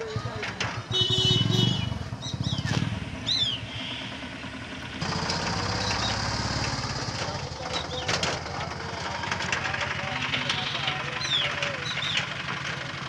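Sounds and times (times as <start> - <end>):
small engine puttering: 0.0 - 13.0
bird chirps: 1.4 - 4.4, 5.7 - 6.3, 10.5 - 12.4.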